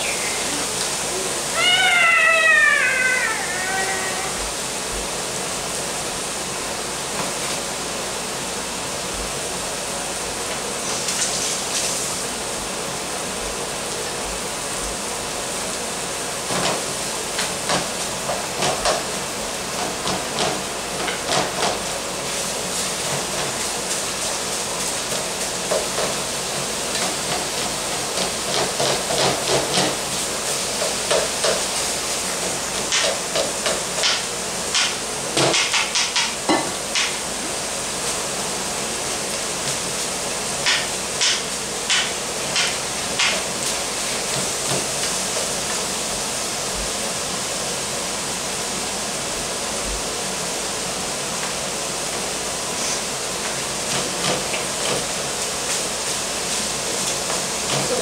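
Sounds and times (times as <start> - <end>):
meat sizzling in a skillet: 13.8 - 58.0.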